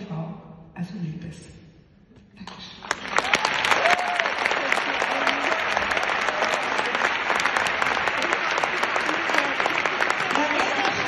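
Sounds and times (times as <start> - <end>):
audience applauding: 2.8 - 11.0.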